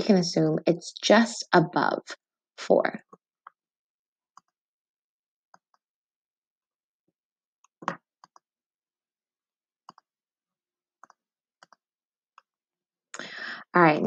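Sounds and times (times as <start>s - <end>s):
computer mouse clicking: 11.0s - 11.8s.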